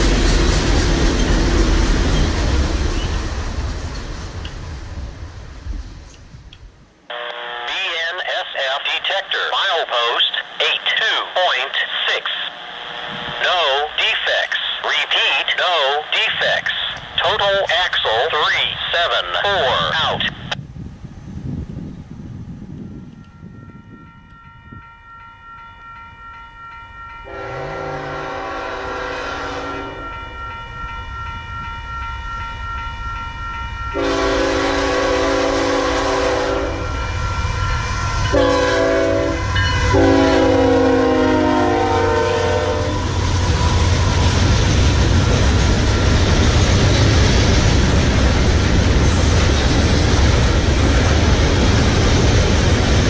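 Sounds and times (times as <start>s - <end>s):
locomotive air horn blasts: 7.1s - 7.8s, 27.3s - 30.1s, 34.0s - 37.2s, 38.2s - 43.2s
locomotive rumble passing: 34.0s - 53.0s.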